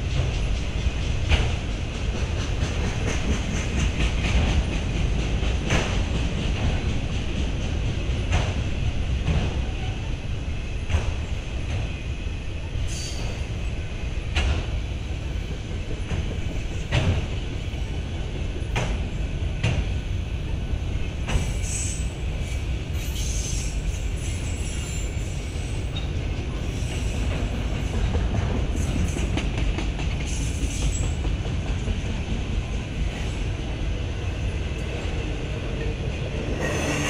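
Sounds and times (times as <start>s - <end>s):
train wheels rumbling on rail: 0.0s - 37.0s
wheels clacking over rail joints: 0.1s - 8.6s.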